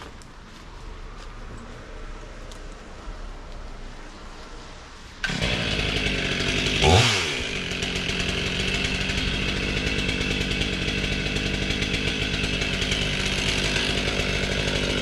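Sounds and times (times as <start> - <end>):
chainsaw engine running: 5.2 - 15.0.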